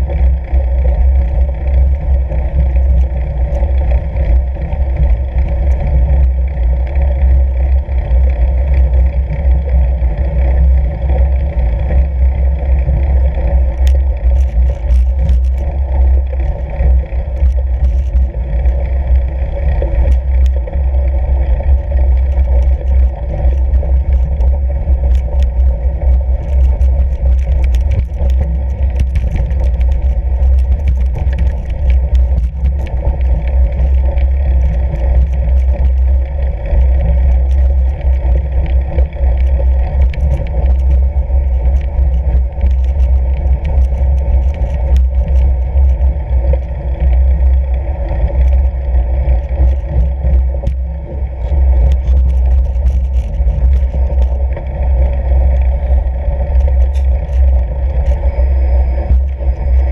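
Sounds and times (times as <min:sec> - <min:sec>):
wind and tyre rumble: 0:00.0 - 0:59.9
small clicks: 0:13.2 - 0:20.6, 0:21.4 - 0:47.6, 0:51.4 - 0:59.9.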